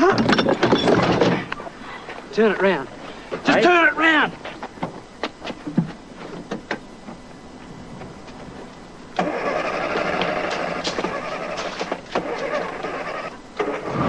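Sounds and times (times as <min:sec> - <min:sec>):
small car engine starting and running: 0:09.2 - 0:14.0.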